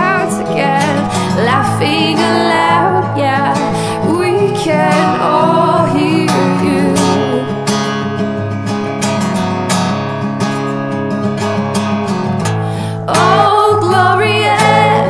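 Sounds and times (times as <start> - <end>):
woman singing: 0.0 - 7.7, 12.9 - 15.0
acoustic guitar strumming: 0.0 - 15.0.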